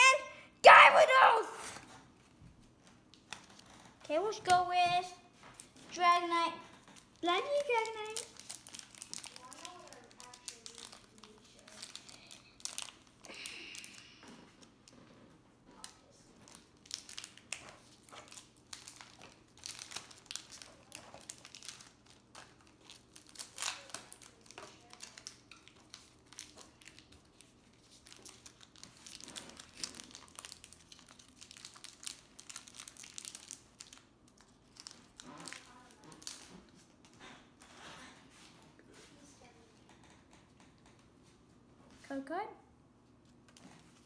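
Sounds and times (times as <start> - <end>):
foil wrapper crinkling and tearing: 6.8 - 15.0, 15.8 - 36.7.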